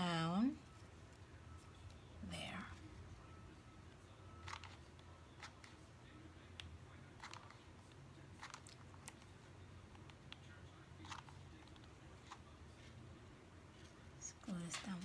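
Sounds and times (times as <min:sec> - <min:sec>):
low room hum: 0:00.0 - 0:15.0
faint clicks and crackles: 0:06.5 - 0:12.6.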